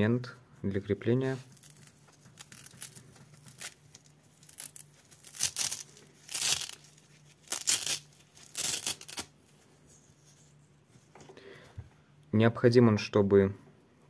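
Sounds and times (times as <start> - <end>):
mask rustling as handled: 1.0 - 11.8.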